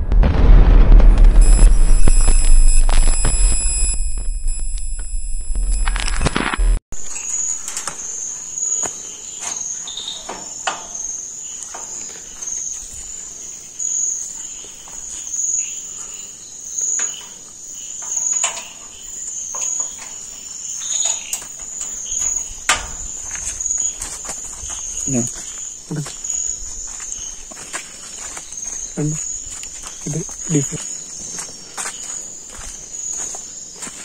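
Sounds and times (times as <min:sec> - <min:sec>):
crickets chirping: 0:01.4 - 0:34.0
sharp clicks and knocks: 0:21.0 - 0:23.1.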